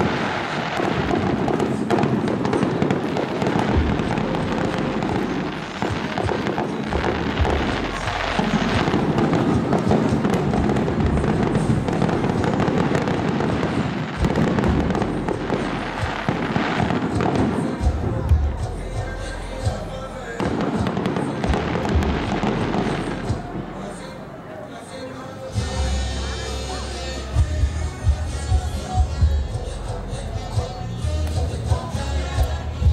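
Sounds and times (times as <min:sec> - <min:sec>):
deep fireworks booms: 0:00.0 - 0:18.6, 0:20.4 - 0:23.8
fireworks crackling: 0:00.0 - 0:32.9.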